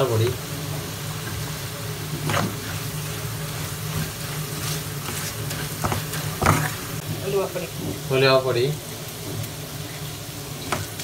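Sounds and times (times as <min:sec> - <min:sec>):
spatula scraping a pan: 0:02.2 - 0:07.0.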